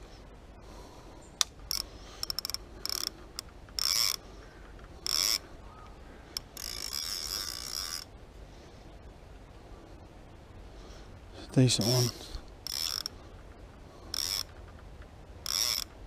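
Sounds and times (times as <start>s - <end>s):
fishing reel ratchet clicking: 1.6s - 4.2s, 5.0s - 5.4s, 6.4s - 8.1s, 11.9s - 13.1s, 14.1s - 14.6s, 15.4s - 16.0s.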